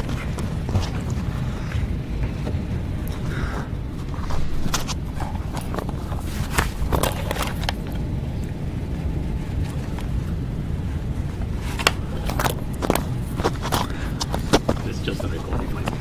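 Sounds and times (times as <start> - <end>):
low room rumble: 0.0 - 16.0.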